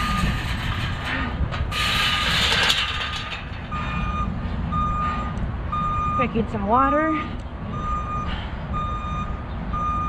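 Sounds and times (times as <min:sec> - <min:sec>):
low traffic rumble: 0:00.0 - 0:10.0
reversing alarm beeps: 0:03.7 - 0:10.0.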